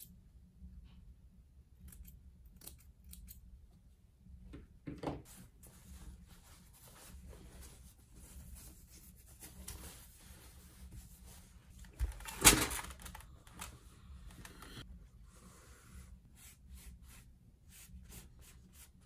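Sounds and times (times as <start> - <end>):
cloth rubbing softly: 5.2 - 11.8
cloth rustling: 5.3 - 13.7.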